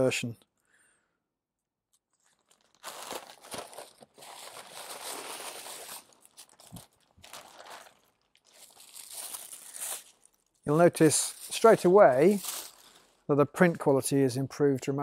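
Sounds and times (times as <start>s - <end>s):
plastic bag crinkling: 1.9s - 13.3s.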